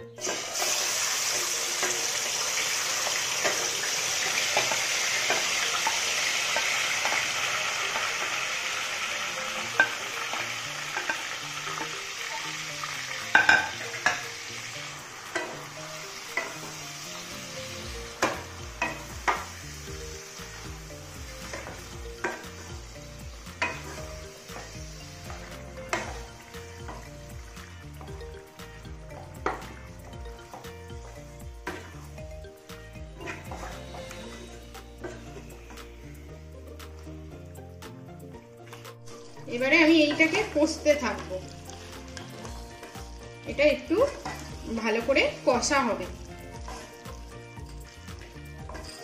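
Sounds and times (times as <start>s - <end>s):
meat sizzling in hot oil: 0.0s - 38.1s, 38.8s - 49.0s
wooden spatula scraping a pan: 23.4s - 27.1s, 30.4s - 32.2s, 33.2s - 35.8s, 46.5s - 47.1s, 47.7s - 49.0s.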